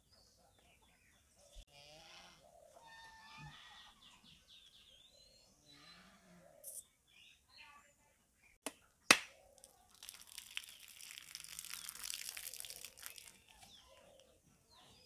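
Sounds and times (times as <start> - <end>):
knife cracking coconut shell: 8.6 - 9.3
crackly hissing rustle: 9.9 - 13.7.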